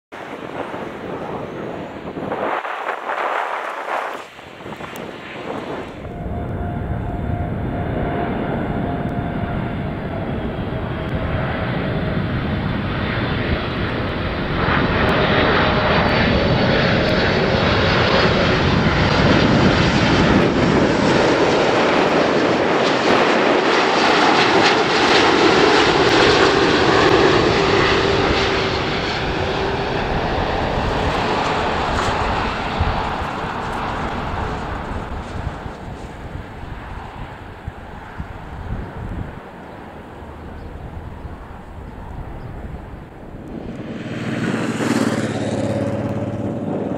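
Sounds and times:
jet roar: 0.1 - 46.9
faint falling whine: 5.7 - 12.3.

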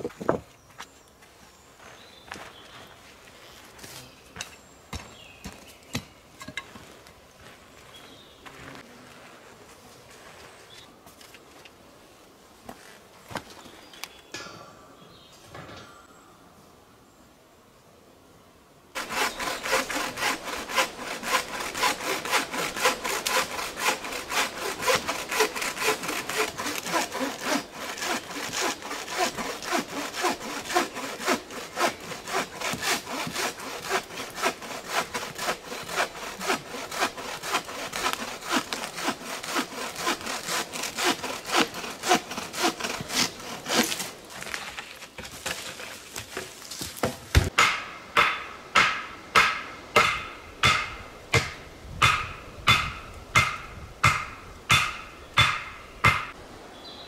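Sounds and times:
bow saw cutting log: 19.0 - 44.6.

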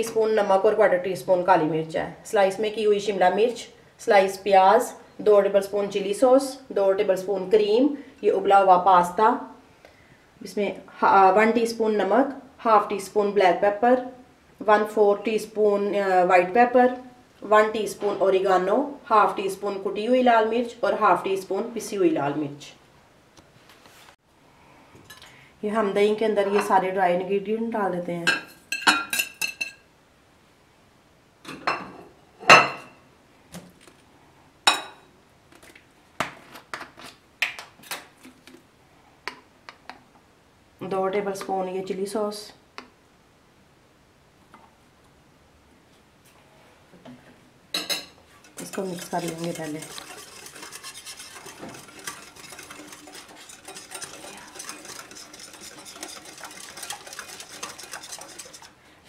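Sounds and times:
whisk tapping glass bowl: 47.8 - 58.7.

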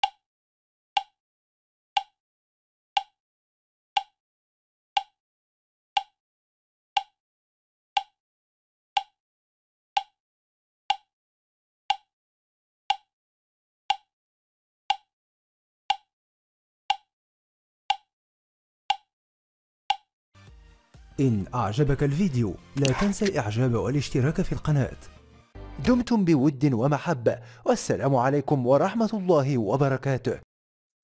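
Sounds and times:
clock ticking: 0.0 - 0.2, 1.0 - 1.2, 2.0 - 2.2, 3.0 - 3.2, 4.0 - 4.2, 5.0 - 5.2, 6.0 - 6.2, 7.0 - 7.2, 8.0 - 8.2, 9.0 - 9.2, 10.0 - 10.2.

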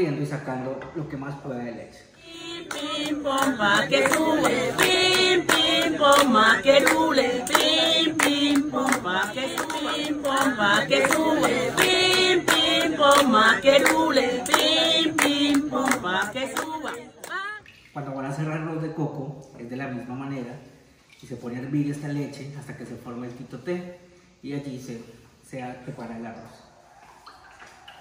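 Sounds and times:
group singing: 2.2 - 17.6.

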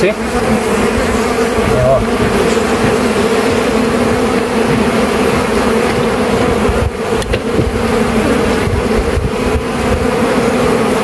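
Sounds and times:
honeybees buzzing: 0.0 - 11.0.

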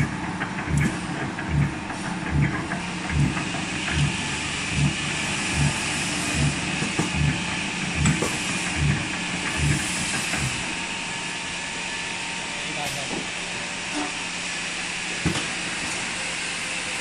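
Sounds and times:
low machine thumps: 0.0 - 10.7
machine hissing: 0.0 - 12.0.

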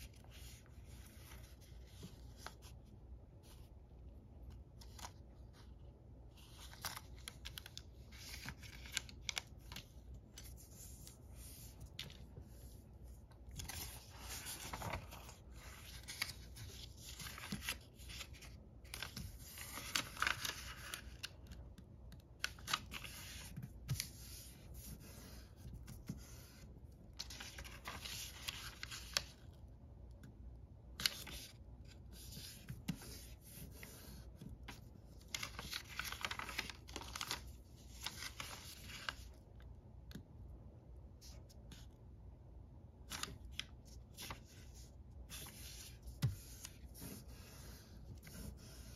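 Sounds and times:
paper rustling and sliding: 6.4 - 21.4, 31.0 - 39.4.

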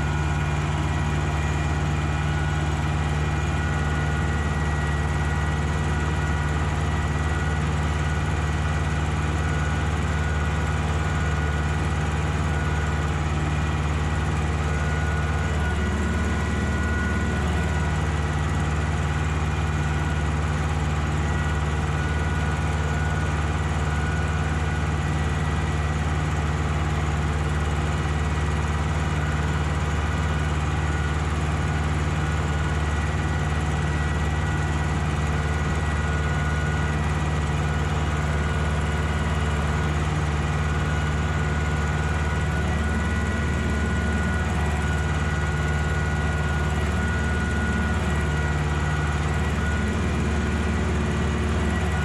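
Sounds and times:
tractor diesel engine running: 0.0 - 52.0.

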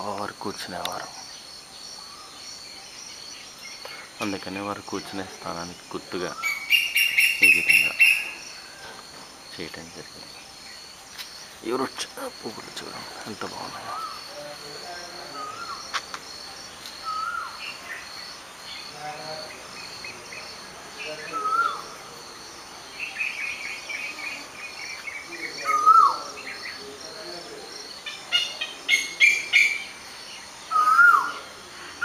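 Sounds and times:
bird chirps: 0.0 - 27.2, 27.8 - 32.0
insects chirring: 0.0 - 32.0.

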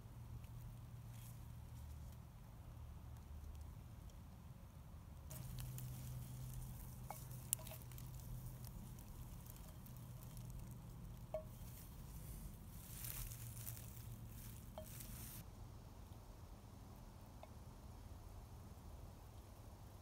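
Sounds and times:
leaves and stems rustling: 5.3 - 15.4.

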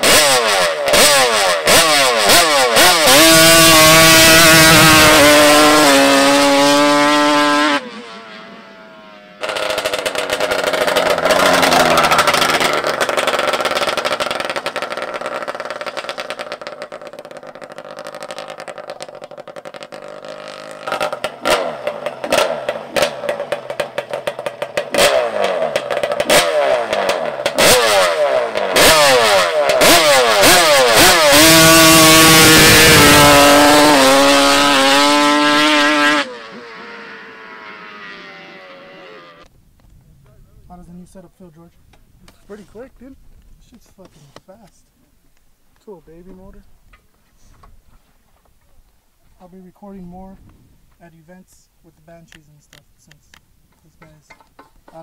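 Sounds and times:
quad bike engine revving: 0.0 - 39.5.

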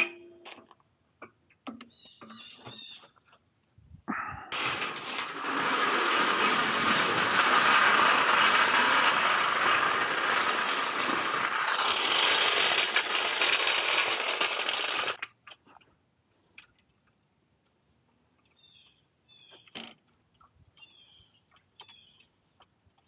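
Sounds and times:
metal lift casters rattling on asphalt: 4.5 - 15.5.

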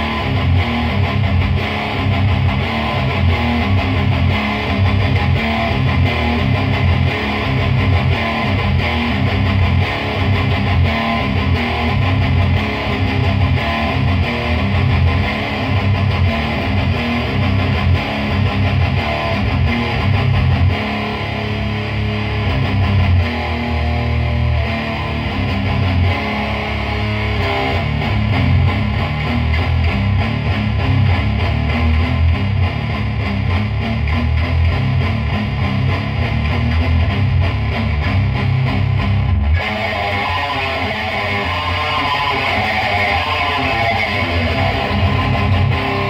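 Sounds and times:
distorted electric guitar riff: 0.0 - 46.0.

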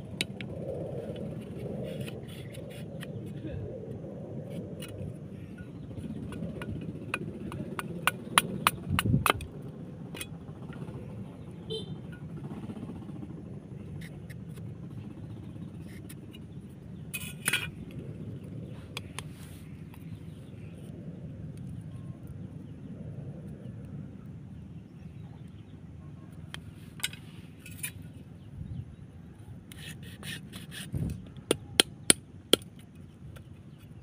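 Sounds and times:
machete shaving bamboo clicks: 5.9 - 10.3, 29.7 - 33.9.

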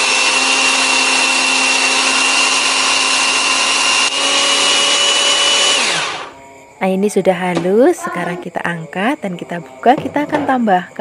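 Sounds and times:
food chopper motor whirring: 0.0 - 6.4.

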